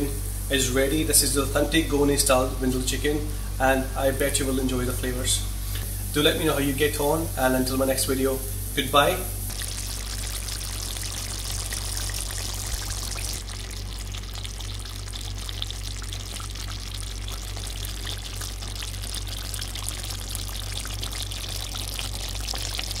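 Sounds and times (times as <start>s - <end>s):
steady low hum: 0.0s - 23.0s
curry bubbling and popping: 9.5s - 23.0s.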